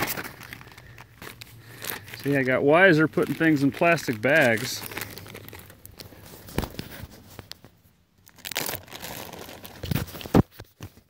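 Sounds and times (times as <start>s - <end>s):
plastic bag crinkling: 0.0s - 10.4s.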